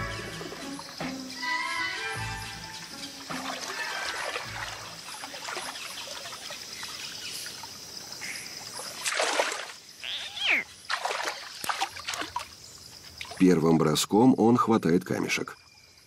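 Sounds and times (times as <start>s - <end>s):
shallow water trickling and lapping: 0.0s - 13.9s
water splashing: 2.8s - 8.0s, 8.6s - 13.7s.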